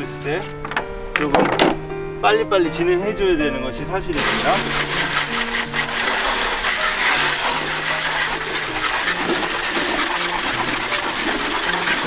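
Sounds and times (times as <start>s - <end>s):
water spray hissing on plastic: 4.1s - 12.0s.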